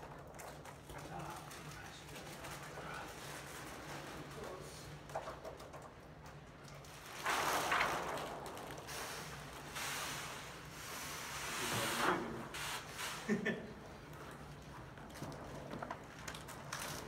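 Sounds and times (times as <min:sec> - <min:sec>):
hand sprayer hissing: 0:09.7 - 0:13.5.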